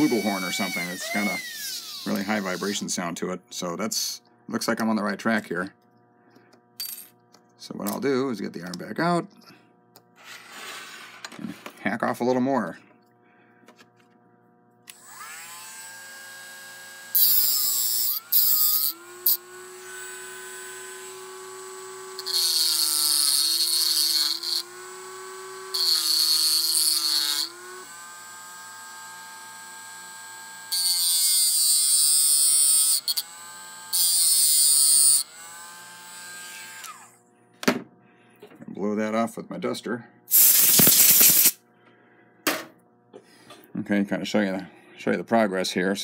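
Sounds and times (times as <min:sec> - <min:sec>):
power tool motor whine: 0:00.0 - 0:02.9, 0:14.9 - 0:37.2, 0:40.3 - 0:41.6.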